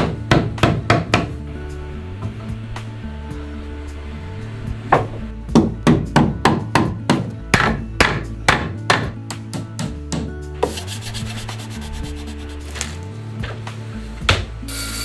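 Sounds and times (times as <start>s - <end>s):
faint background music: 0.0s - 15.0s
fast rasping scrape: 10.6s - 13.0s.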